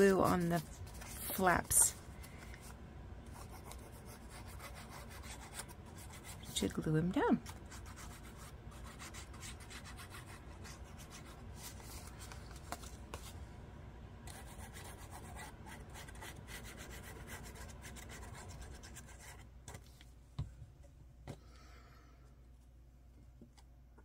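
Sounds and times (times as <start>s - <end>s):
scratchy rubbing on paper: 3.3s - 6.6s, 7.5s - 12.2s, 14.3s - 19.5s.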